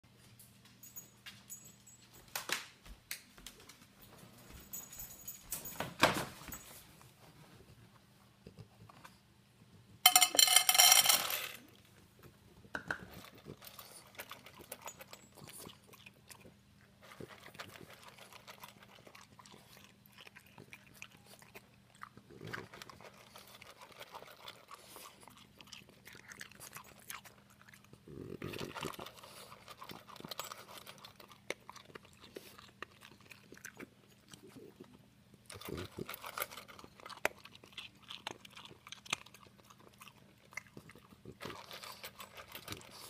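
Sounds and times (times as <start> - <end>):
kibble poured into metal bowl: 10.1 - 11.6
dog crunching kibble: 12.7 - 43.0.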